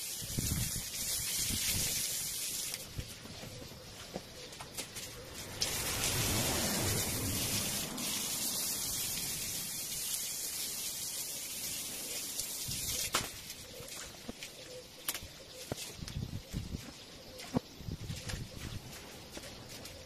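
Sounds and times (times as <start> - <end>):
garden hose spraying water: 0.0 - 3.5, 4.6 - 15.2.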